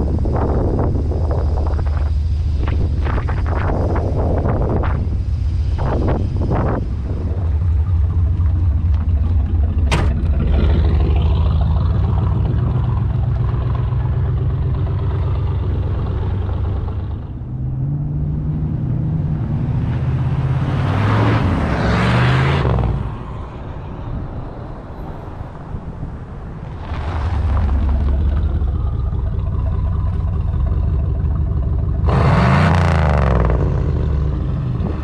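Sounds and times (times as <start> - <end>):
car engine running: 0.0 - 23.2, 26.7 - 35.0
car accelerating past: 5.9 - 23.6, 26.6 - 35.0
car door shutting: 9.8 - 10.7.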